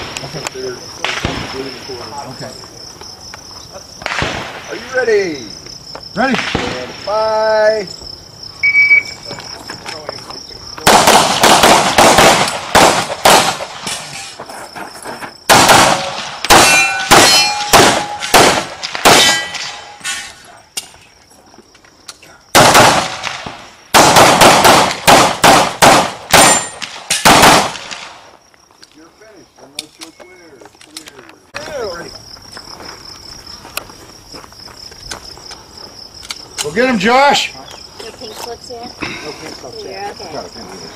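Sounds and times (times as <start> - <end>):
pistol shots: 4.0 - 4.6, 10.8 - 14.0, 15.5 - 20.2, 22.5 - 28.2
electronic timer beep: 8.6 - 9.3.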